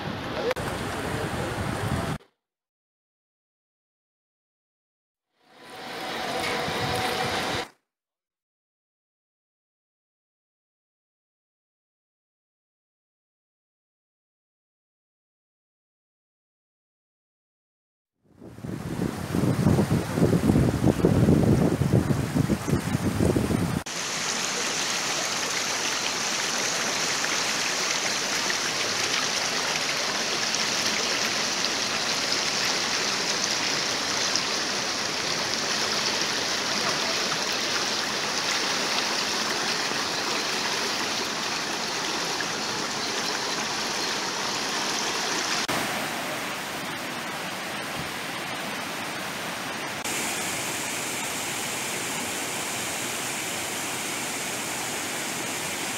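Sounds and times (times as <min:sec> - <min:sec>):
water pouring down cascades: 0:05.5 - 0:07.7, 0:23.8 - 0:55.9
river rushing over rocks: 0:23.9 - 0:55.9.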